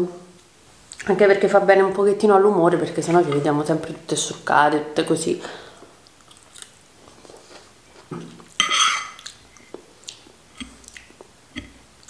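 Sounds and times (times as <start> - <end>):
chewing and mouth clicks: 6.0 - 8.5, 9.1 - 11.8
fork scraping ceramic plate: 8.6 - 9.2.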